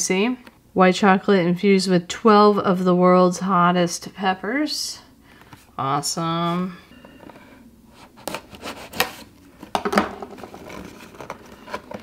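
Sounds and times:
hands handling cardboard box: 0:07.1 - 0:12.0.

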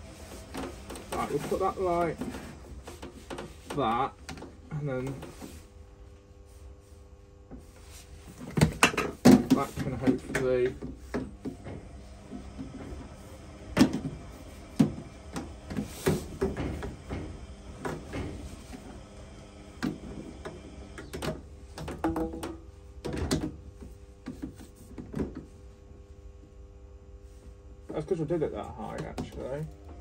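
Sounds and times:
plastic pipe parts knocking: 0:08.5 - 0:11.8, 0:14.8 - 0:18.4, 0:19.8 - 0:25.5.

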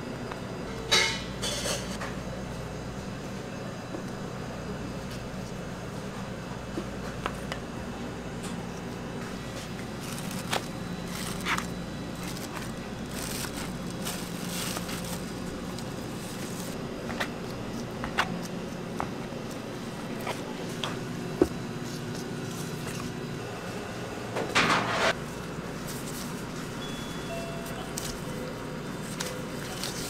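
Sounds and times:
steady machine hum: 0:00.0 - 0:30.0
plastic sheet crackling: 0:09.9 - 0:16.8.

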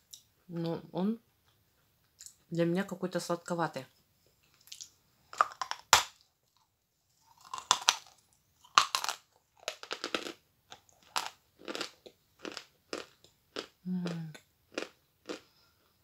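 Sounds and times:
dry crunching chewing: 0:04.4 - 0:15.6.

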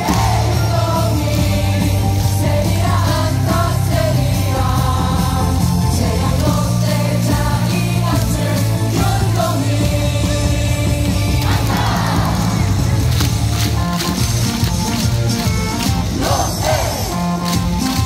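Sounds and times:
crowd singing along: 0:00.0 - 0:13.0, 0:16.0 - 0:17.4
rock-style cheer song on loudspeakers: 0:00.0 - 0:18.0.

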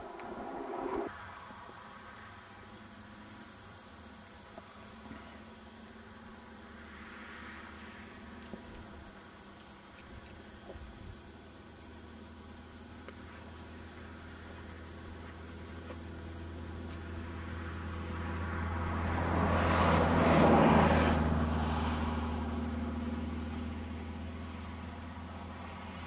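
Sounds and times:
vehicle passing by: 0:00.0 - 0:01.4, 0:05.0 - 0:09.0, 0:15.0 - 0:26.0
steady low hum: 0:00.0 - 0:20.3, 0:21.0 - 0:26.0.

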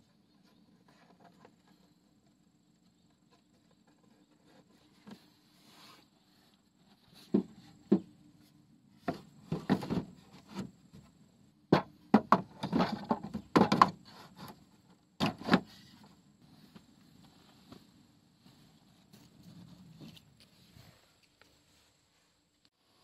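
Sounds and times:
wood knocking and clattering: 0:07.2 - 0:08.2, 0:09.0 - 0:11.1, 0:11.7 - 0:14.1.

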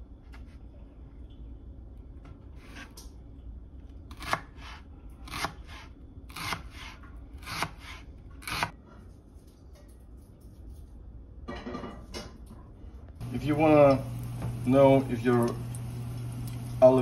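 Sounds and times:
knife slicing onion on plastic board: 0:04.1 - 0:08.8.

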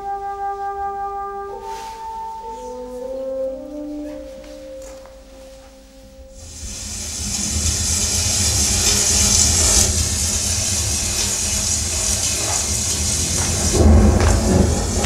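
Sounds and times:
wind rushing: 0:06.4 - 0:15.0.

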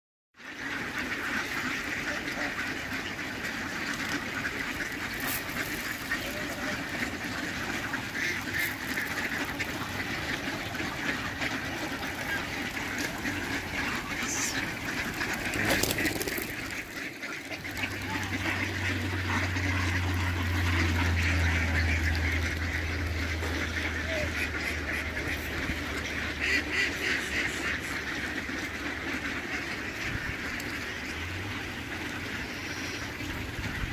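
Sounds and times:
ducks quacking: 0:00.4 - 0:33.9
low steady rumble: 0:16.5 - 0:33.9.

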